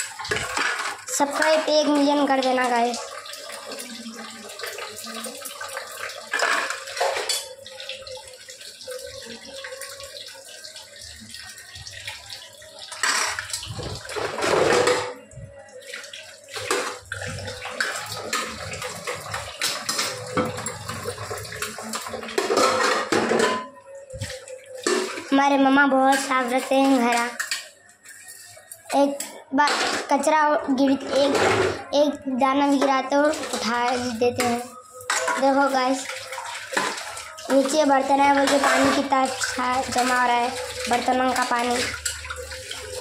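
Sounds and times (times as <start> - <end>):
tap water running into sink: 0.0 - 30.1, 32.5 - 43.0
metal dishes clinking: 0.2 - 2.1, 5.1 - 7.7, 12.9 - 15.2, 16.6 - 23.8, 32.8 - 35.8, 36.7 - 43.0.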